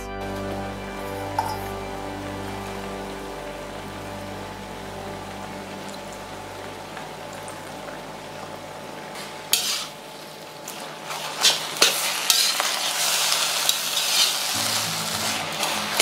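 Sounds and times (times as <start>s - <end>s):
frying sizzle: 0.2s - 16.0s
metal spatula scraping wok: 9.2s - 10.0s, 10.7s - 16.0s.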